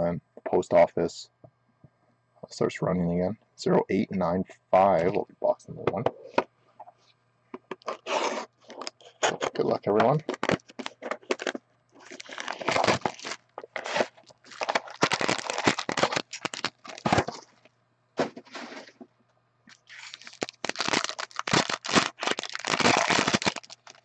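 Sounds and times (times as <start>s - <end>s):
plastic wrapping crinkling: 7.8s - 17.7s, 19.7s - 24.0s
foil pack ripped open: 10.2s - 17.5s, 19.8s - 24.0s.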